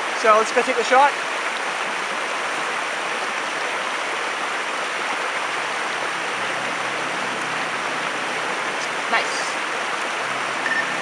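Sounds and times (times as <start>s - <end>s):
water rushing: 0.0s - 11.0s.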